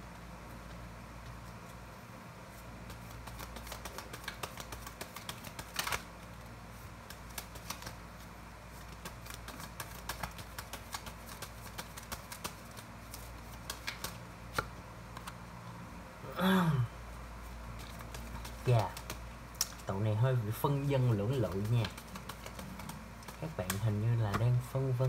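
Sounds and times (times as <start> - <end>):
cards shuffling: 2.5 - 15.4, 17.4 - 25.0.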